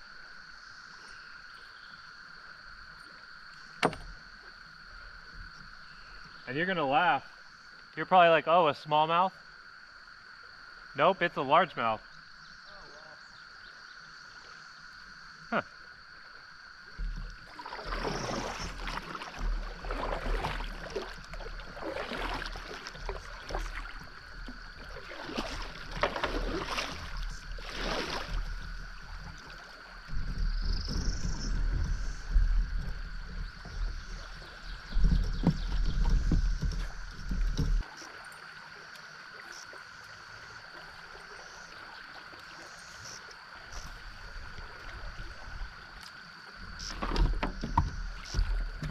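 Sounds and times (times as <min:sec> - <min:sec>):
paddle strokes splashing water: 0:16.8 - 0:48.9.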